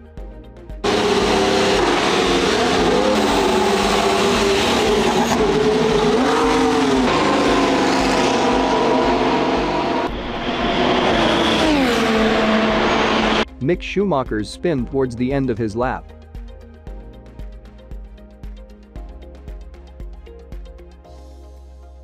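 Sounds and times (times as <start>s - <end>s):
racing car engine revving: 0.8s - 13.4s.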